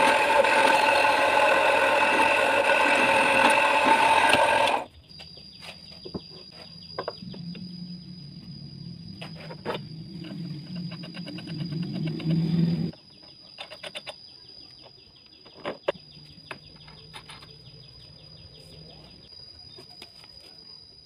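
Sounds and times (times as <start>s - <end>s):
drill press humming: 0.0s - 4.9s.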